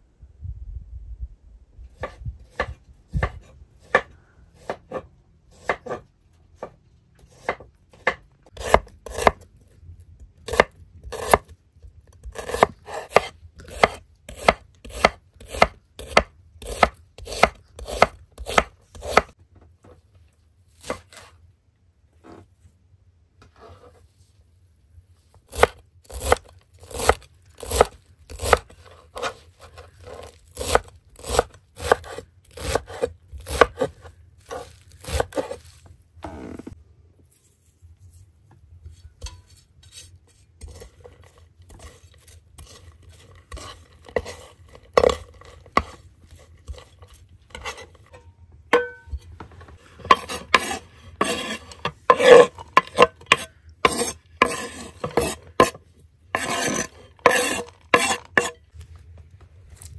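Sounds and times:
knife chopping on wooden board: 2.0s - 6.0s, 6.6s - 9.4s, 12.2s - 19.4s, 25.5s - 29.4s, 30.0s - 35.6s, 45.0s - 46.0s, 50.0s - 55.8s, 56.4s - 58.6s.

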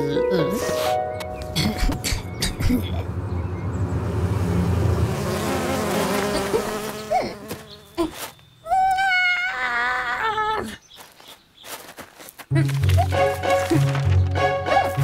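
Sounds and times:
flies buzzing: 1.4s - 8.4s.

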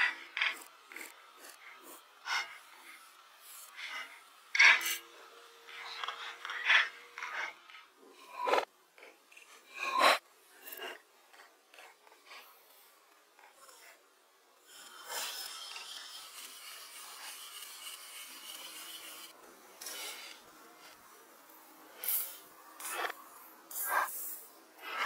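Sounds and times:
rough rubbing noise: 14.7s - 20.4s.

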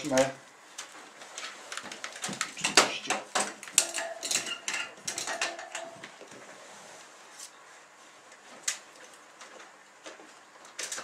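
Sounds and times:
wires and plug clattering: 1.4s - 6.4s.

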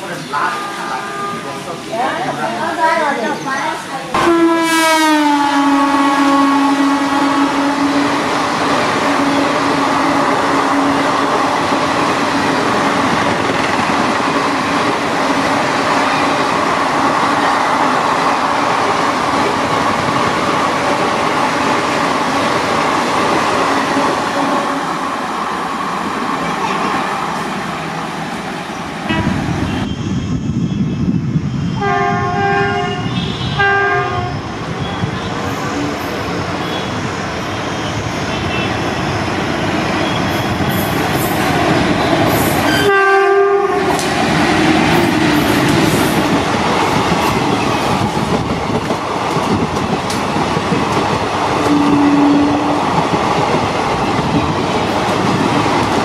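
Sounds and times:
train wheels roaring on rail: 0.0s - 56.0s
locomotive horn: 0.5s - 1.6s, 4.2s - 8.4s, 29.1s - 30.0s, 31.8s - 34.4s, 42.7s - 44.0s, 51.6s - 52.7s.

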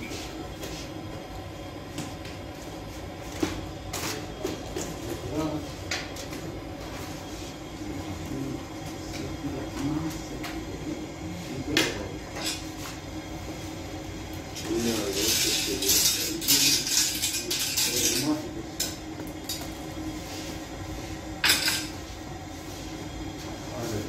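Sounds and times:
bakery room noise: 0.0s - 24.0s
iron rod scraping in oven: 14.6s - 18.9s.

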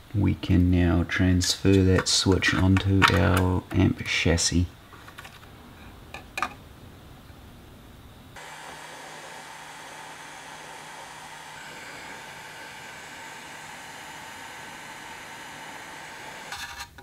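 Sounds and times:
heat gun blowing with hum: 8.4s - 16.6s
heat gun switched on: 8.4s - 16.6s.

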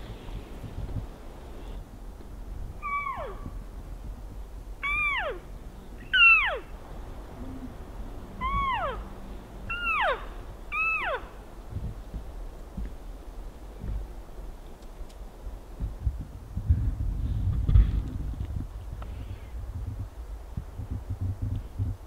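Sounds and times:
elk mewing calls: 2.8s - 3.6s, 4.8s - 11.4s.

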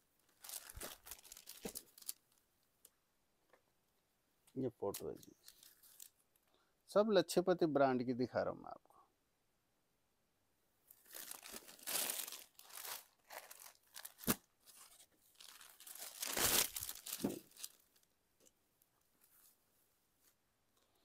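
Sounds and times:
crinkling and rustling: 0.2s - 2.4s, 4.9s - 6.2s, 10.9s - 19.6s.

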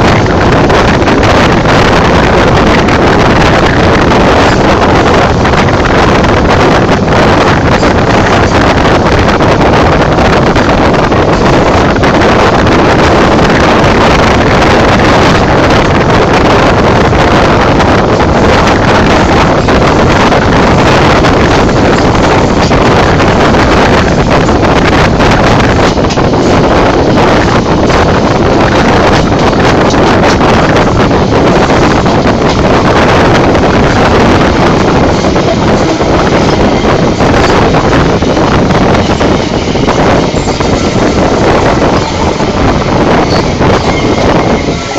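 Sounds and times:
train running: 0.0s - 44.9s
wind rushing over microphone: 0.0s - 44.9s.

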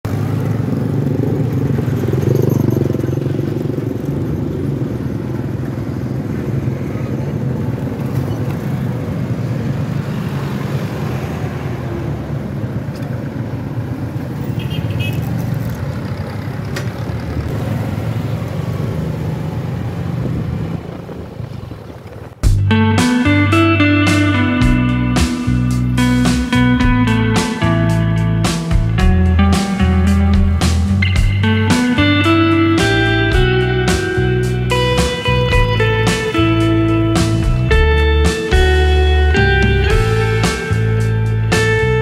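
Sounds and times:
road noise: 0.0s - 42.0s
motorcycle engine running: 0.1s - 8.6s
wind on microphone: 20.0s - 22.5s.

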